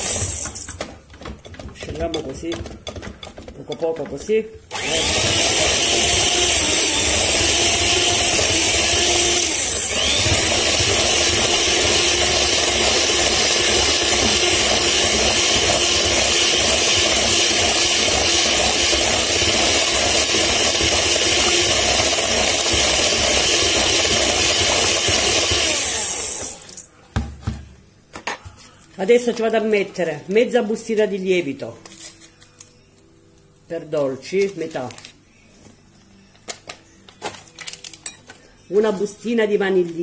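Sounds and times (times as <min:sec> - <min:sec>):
electric hand mixer whisking: 0:00.0 - 0:00.9, 0:04.7 - 0:26.7.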